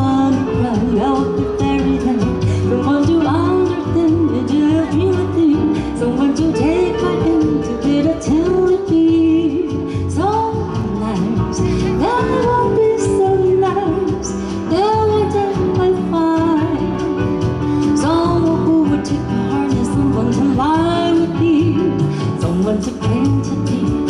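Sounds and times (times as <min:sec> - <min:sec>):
band playing: 0:00.0 - 0:24.0
woman singing slow melody: 0:00.0 - 0:24.0.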